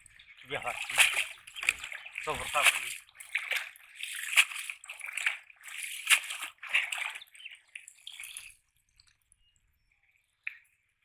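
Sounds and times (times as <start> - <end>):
water sloshing and splashing: 0.0 - 9.4
water dripping off net: 0.4 - 9.4, 10.4 - 10.8.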